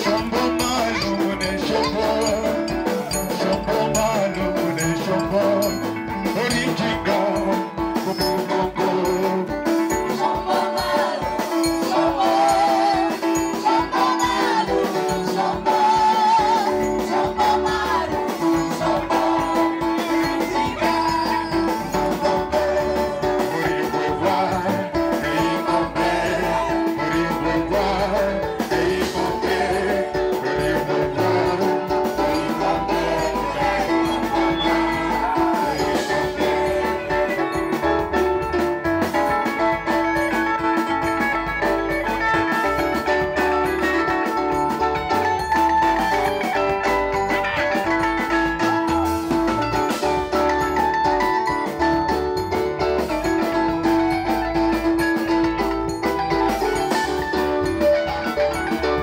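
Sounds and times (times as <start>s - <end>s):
person singing: 0.0s - 46.6s
steady drum beat: 0.0s - 59.0s
upbeat band music: 0.0s - 59.0s.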